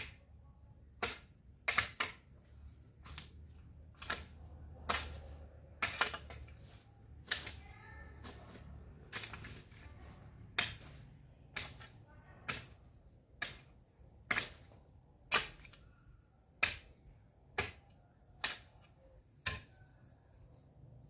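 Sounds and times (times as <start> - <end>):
hoe chopping into soil: 1.0 - 2.2, 3.9 - 7.6, 8.2 - 15.8, 18.4 - 18.7.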